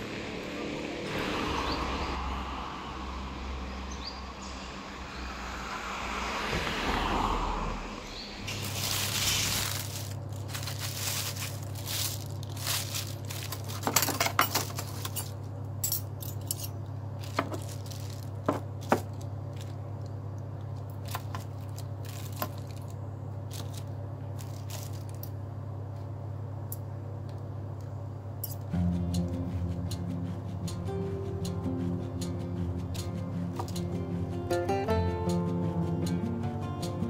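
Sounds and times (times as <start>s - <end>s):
steady low hum: 7.7s - 37.0s
plastic food wrap crinkling: 8.5s - 15.4s, 17.2s - 20.2s, 20.8s - 25.4s.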